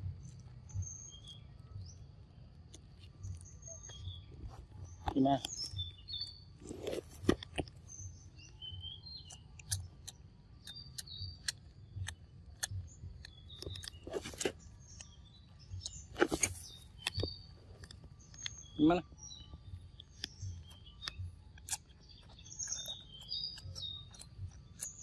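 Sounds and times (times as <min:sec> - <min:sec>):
birds chirping: 0:00.0 - 0:25.0
wet smacking clicks: 0:09.2 - 0:15.2, 0:20.0 - 0:25.0.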